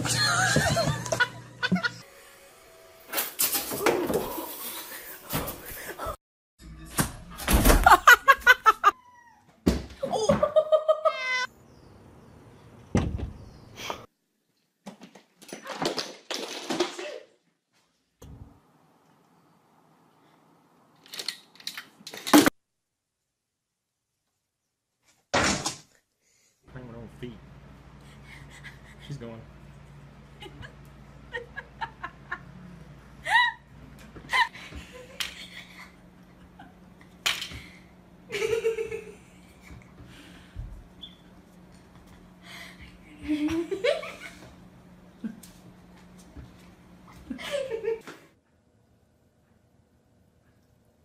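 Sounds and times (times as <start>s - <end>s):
person laughing: 0.0s - 2.0s, 7.8s - 9.0s, 10.2s - 11.5s, 28.2s - 29.2s, 30.3s - 36.8s, 38.3s - 39.8s, 42.6s - 44.5s, 47.1s - 48.1s.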